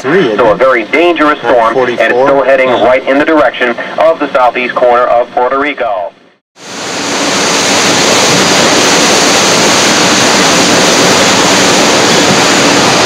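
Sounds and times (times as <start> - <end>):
strong wind rushing: 6.6 - 13.0
wind buffeting microphone: 6.9 - 13.0.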